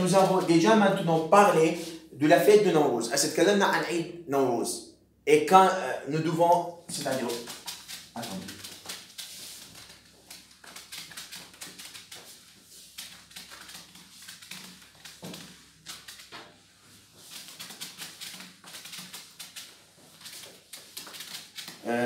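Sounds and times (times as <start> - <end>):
eraser scrubbing whiteboard: 0.0 - 2.1, 6.9 - 21.8.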